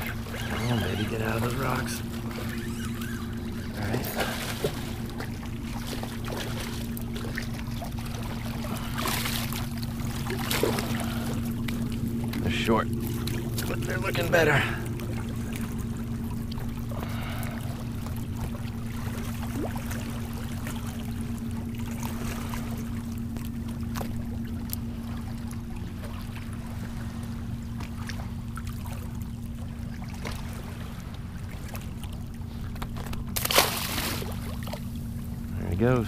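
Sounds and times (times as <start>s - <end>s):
small waves lapping on rocks: 0.0s - 21.0s, 30.0s - 35.0s
low rumble and hum: 0.0s - 36.0s.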